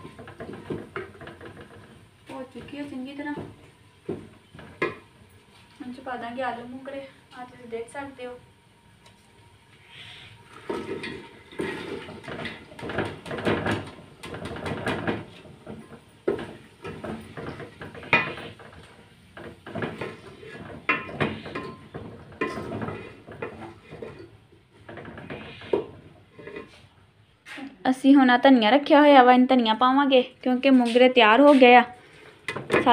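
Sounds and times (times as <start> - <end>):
vegetables tumbling into metal pot: 10.5 - 26.9, 32.5 - 32.9
spoon scraping and knocking pot: 10.6 - 26.8.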